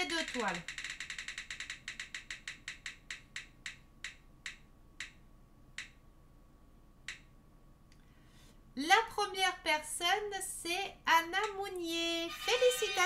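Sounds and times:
spinning wheel app ticks: 0.0s - 6.0s.

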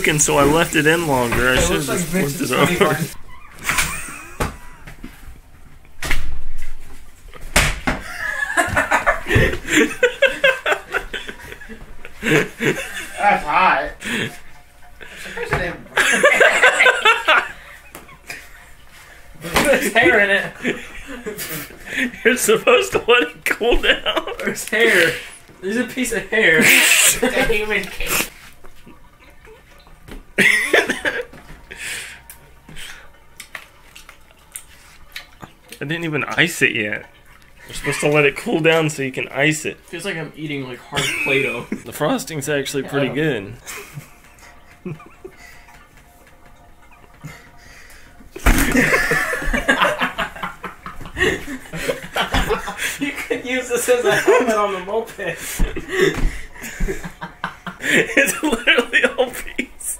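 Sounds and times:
person laughing: 2.7s - 5.0s.

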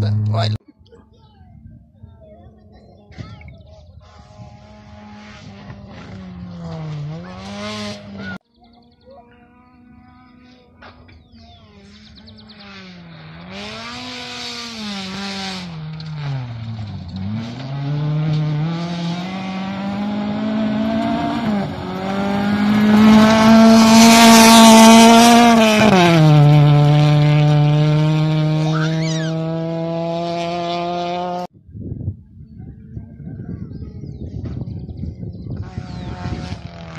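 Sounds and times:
rally car engine revving: 0.0s - 0.6s, 4.0s - 8.4s, 10.3s - 31.5s, 34.4s - 36.9s.

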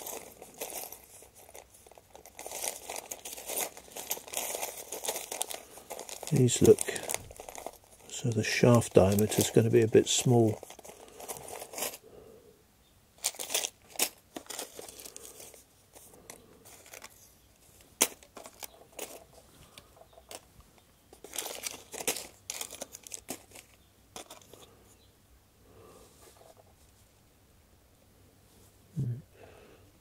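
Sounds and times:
plastic bag crinkling: 0.0s - 12.0s, 13.2s - 24.7s.

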